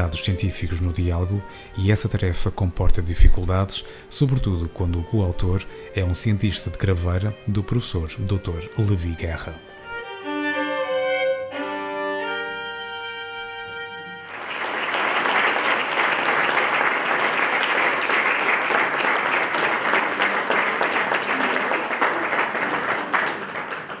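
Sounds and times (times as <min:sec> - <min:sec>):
violin bowed note: 0:04.3 - 0:14.3
audience applause: 0:14.2 - 0:24.0.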